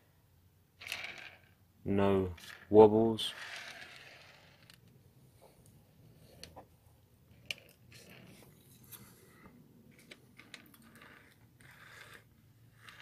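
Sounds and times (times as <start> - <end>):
model train wheels rolling on track: 2.2 - 4.9, 10.4 - 13.0.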